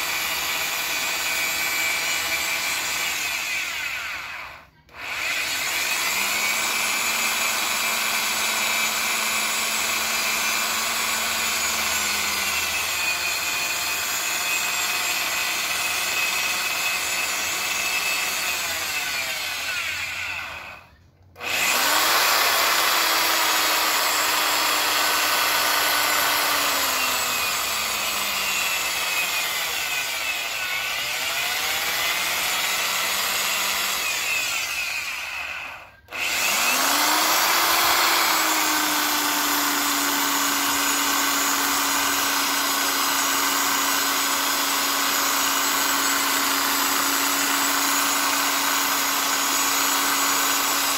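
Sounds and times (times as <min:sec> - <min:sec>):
electric drill on aluminium: 0:00.0 - 0:50.9.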